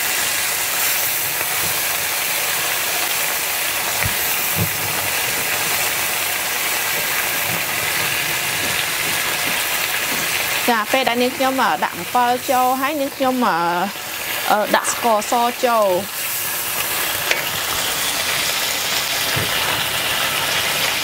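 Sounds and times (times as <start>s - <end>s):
sauce sizzling in a wok: 0.0s - 21.0s
wooden spatula stirring: 4.0s - 12.7s.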